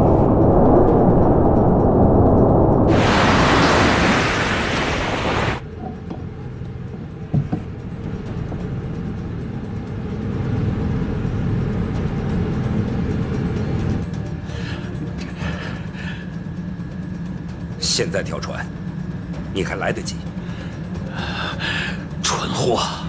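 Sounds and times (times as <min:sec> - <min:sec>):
ship engines rumbling: 0:00.0 - 0:23.0
loud rushing water: 0:02.9 - 0:05.6.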